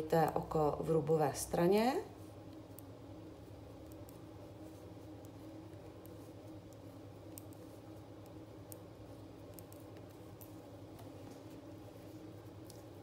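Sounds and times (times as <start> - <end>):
low background hum: 0.0 - 13.0
knitting needles clicking: 5.2 - 11.1.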